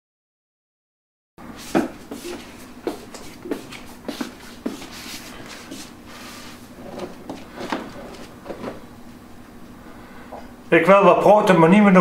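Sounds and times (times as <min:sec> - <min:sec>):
faint steady hum: 0:01.4 - 0:12.0
clicks and knocks of person moving: 0:06.8 - 0:08.9.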